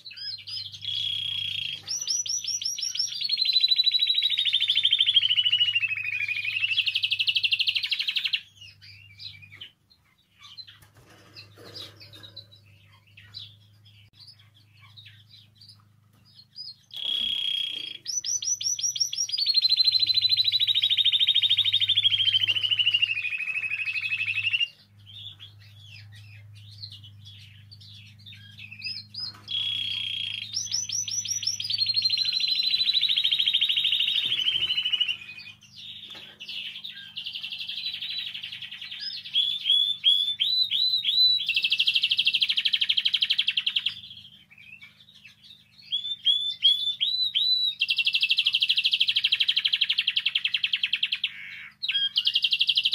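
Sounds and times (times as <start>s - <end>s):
canary chirps: 0.0s - 52.9s
canary singing rolling trills: 0.0s - 52.9s.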